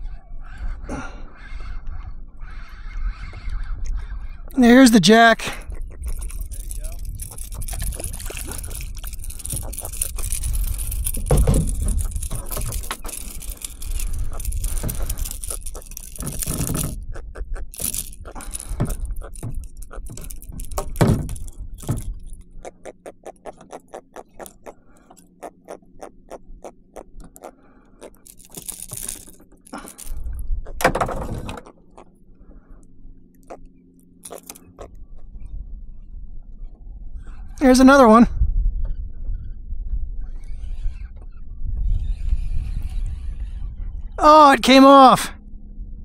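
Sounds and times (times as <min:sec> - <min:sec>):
wind buffeting microphone: 0:00.0 - 0:04.6, 0:05.6 - 0:22.9, 0:30.0 - 0:31.5, 0:34.7 - 0:44.2
rapid clicks and rattles: 0:05.6 - 0:25.3, 0:27.0 - 0:31.8, 0:34.2 - 0:34.9
handling knocks and thumps: 0:06.3 - 0:17.0, 0:17.8 - 0:22.2.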